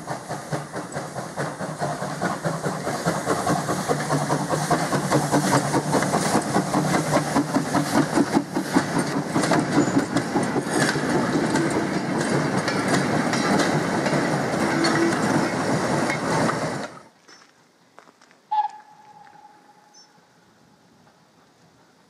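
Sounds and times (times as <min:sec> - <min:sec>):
train wheels clattering over rail joints: 0:00.0 - 0:17.5.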